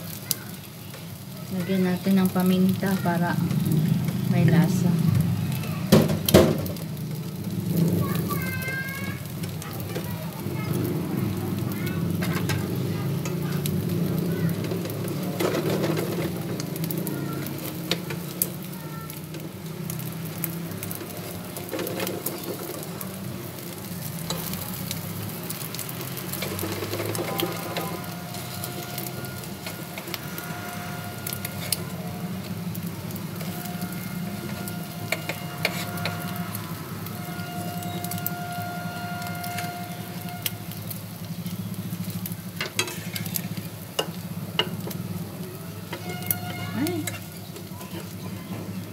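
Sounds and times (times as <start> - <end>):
bread sizzling in oil: 0.0 - 48.9
fork and spatula scraping pan: 26.4 - 32.0, 33.4 - 36.5, 42.6 - 44.1, 45.9 - 48.2.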